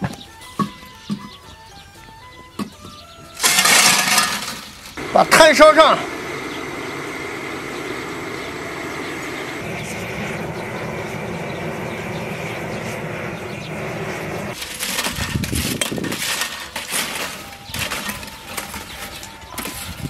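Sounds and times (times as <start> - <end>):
charcoal lumps clinking: 2.7 - 5.6, 14.5 - 20.0
gas blowtorch roaring: 5.0 - 18.3.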